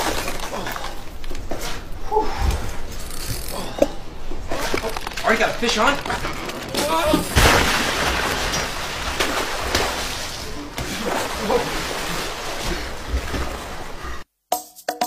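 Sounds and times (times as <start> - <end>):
water splashing and sloshing: 0.0 - 14.3.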